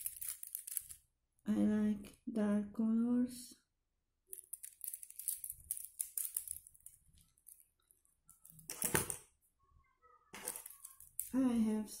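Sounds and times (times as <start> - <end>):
bottles and plastic pieces clicking: 0.0 - 1.0, 4.3 - 9.2
plastic nail tips rattling: 0.0 - 1.0, 4.3 - 9.1.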